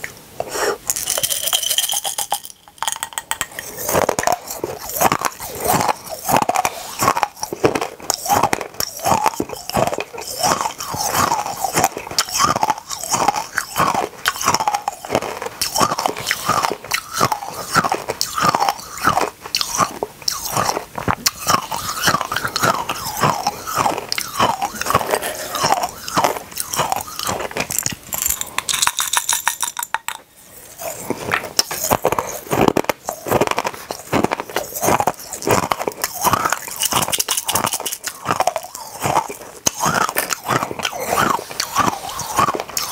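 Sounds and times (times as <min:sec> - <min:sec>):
candies being crunched and chewed: 0:00.7 - 0:42.9.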